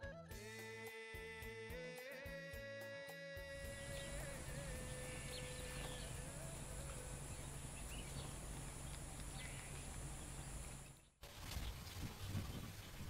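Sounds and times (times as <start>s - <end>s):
steady high hiss: 2.0s - 11.0s
bird-like chirps: 3.8s - 13.0s.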